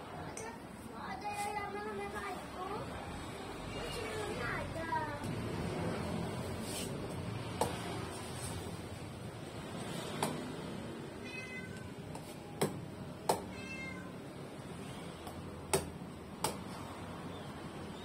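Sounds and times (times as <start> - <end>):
cat meowing: 11.2 - 12.0, 13.4 - 14.2.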